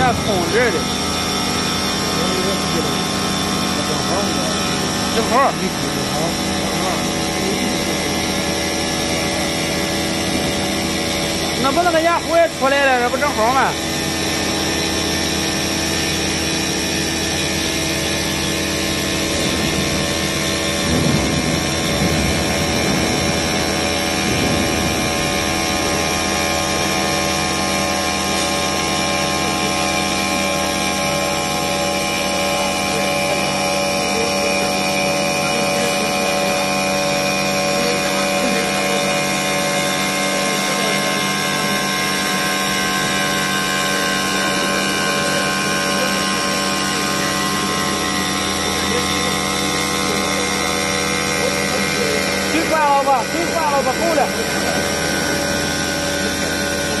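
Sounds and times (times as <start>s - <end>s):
stone milling machine humming: 0.0s - 57.0s.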